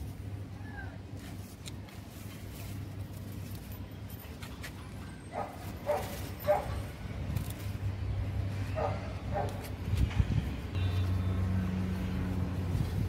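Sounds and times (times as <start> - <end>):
dog barking: 5.3 - 6.8, 8.8 - 9.6.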